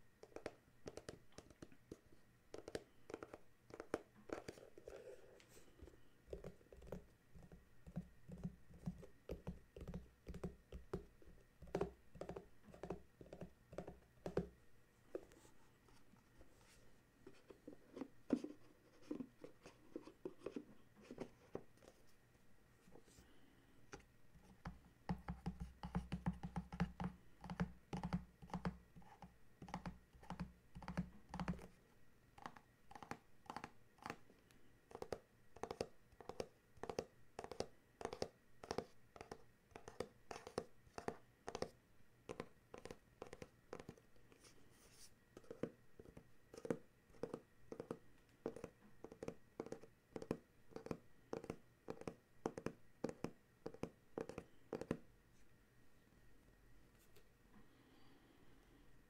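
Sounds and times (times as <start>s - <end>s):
fingers tapping on cardboard box: 6.3s - 14.5s, 24.6s - 31.7s, 45.4s - 55.0s.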